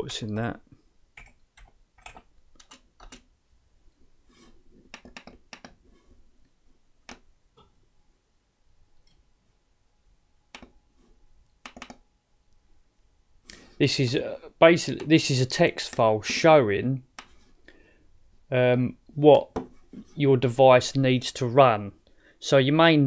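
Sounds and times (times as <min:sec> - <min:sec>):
keyboard keystrokes: 0:01.2 - 0:03.3, 0:11.6 - 0:12.0.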